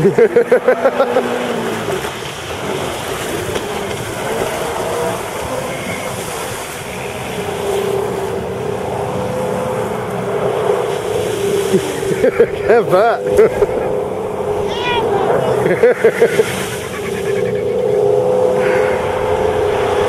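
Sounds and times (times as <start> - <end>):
jet ski engine running: 0.0 - 20.0.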